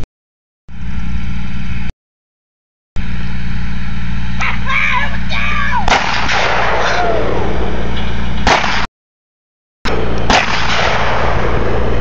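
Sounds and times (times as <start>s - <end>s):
sharp gunshot-like bangs: 5.9s - 7.2s, 8.4s - 8.9s, 10.3s - 11.7s
tractor engine running: 7.3s - 8.6s, 9.9s - 12.0s.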